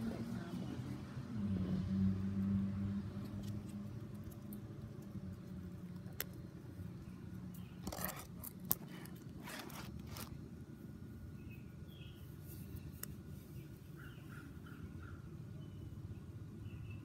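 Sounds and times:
low background hum: 0.0 - 17.0
rustles: 7.6 - 10.5
faint bird chirps: 11.3 - 17.0.

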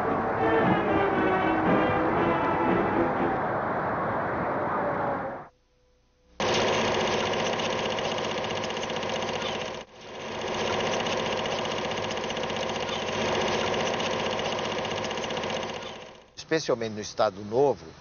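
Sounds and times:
film projector clattering: 6.4 - 16.4
projector hum: 6.4 - 16.6.

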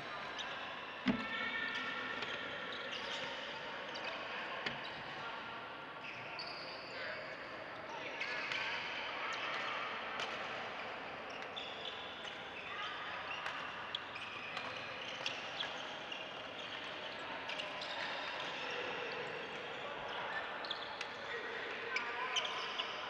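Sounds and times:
hubbub of distant voices: 0.0 - 23.0
shoes squeaking on court: 13.4 - 18.7.

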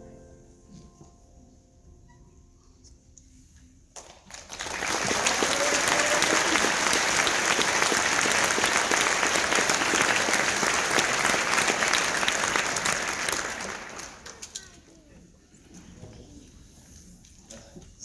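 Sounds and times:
audience applauding: 4.0 - 14.6.

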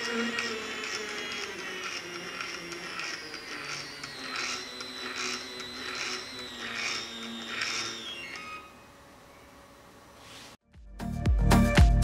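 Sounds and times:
stepper motor whining: 0.0 - 10.1
music with steady beat: 10.6 - 12.0.

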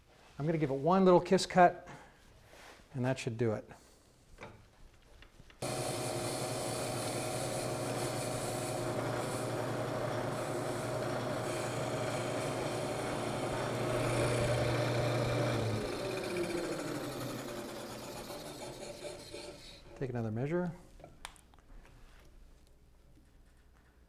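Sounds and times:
spindle winding down: 5.6 - 20.0
wood lathe motor humming: 5.6 - 20.0.

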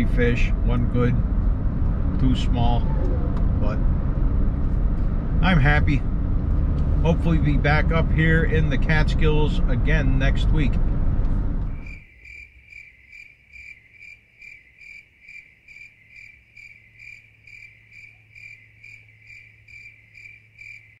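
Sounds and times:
cricket chirping: 11.7 - 21.0.

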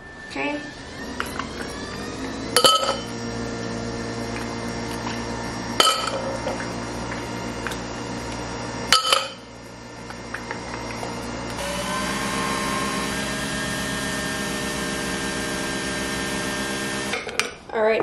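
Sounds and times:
espresso machine motor humming: 0.0 - 17.3
sharp clack of espresso machine: 2.6 - 3.1, 5.8 - 6.3, 8.9 - 9.4.

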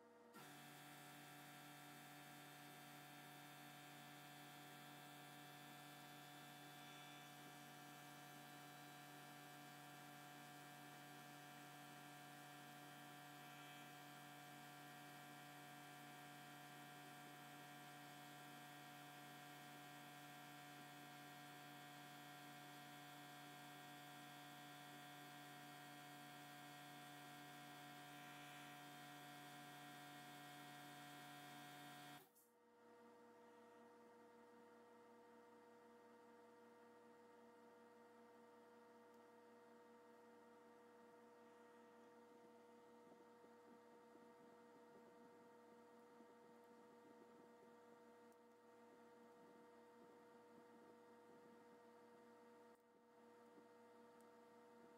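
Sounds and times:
faint electrical hum: 32.2 - 54.9.

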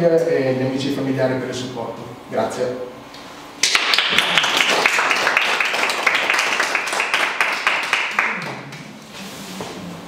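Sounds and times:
small group applauding: 3.6 - 9.0.

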